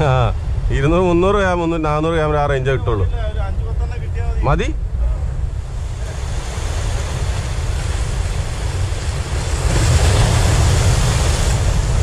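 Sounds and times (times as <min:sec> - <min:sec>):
wind buffeting the microphone: 0:00.0 - 0:12.0
surf washing against rocks: 0:05.0 - 0:12.0.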